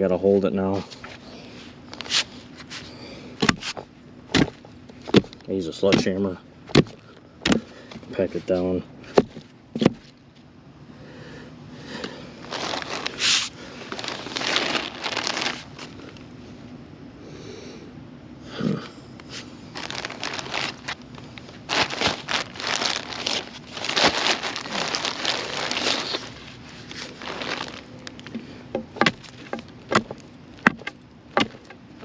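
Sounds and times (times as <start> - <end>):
dirt and rocks scraping and crunching: 0.6 - 10.1, 12.4 - 16.3, 19.2 - 32.0
dull thump: 3.4 - 7.7, 9.2 - 10.1, 28.3 - 31.8.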